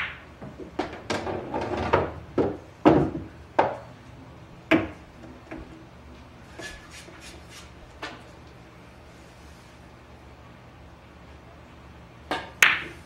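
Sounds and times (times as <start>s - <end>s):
pool balls clacking: 0.0s - 8.3s, 12.3s - 13.0s.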